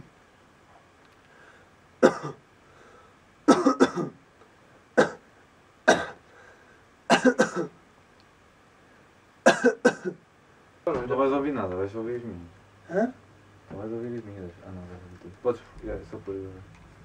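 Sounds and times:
man coughing: 2.0 - 2.4, 3.5 - 4.2, 5.0 - 5.2, 5.9 - 6.2, 7.1 - 7.8, 9.5 - 10.2.

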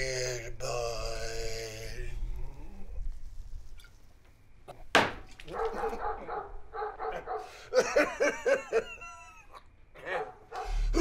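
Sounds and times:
sharp knock: 5.0 - 5.3.

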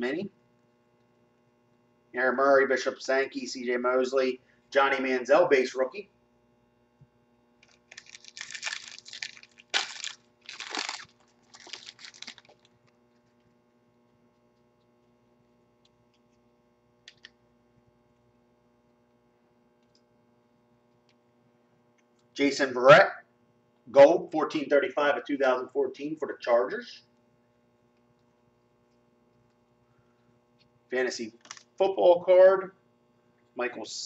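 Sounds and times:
foil wrapper crinkling and tearing: 7.6 - 12.9, 31.4 - 31.7.

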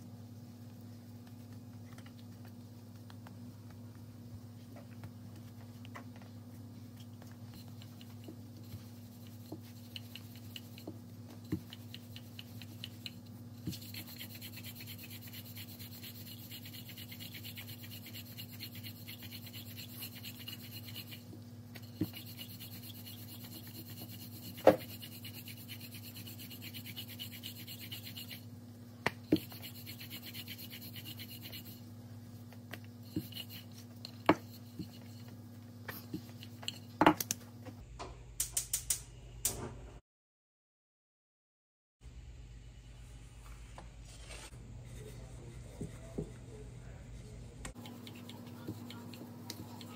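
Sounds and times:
steady low hum: 0.0 - 40.0, 42.0 - 49.9
rolling pin scraping dough: 7.1 - 28.5, 29.2 - 31.9, 32.7 - 37.1, 47.7 - 49.9.

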